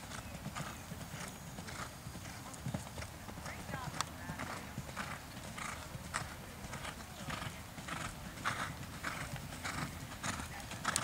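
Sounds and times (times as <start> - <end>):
hoofbeats on sand: 0.0 - 11.0.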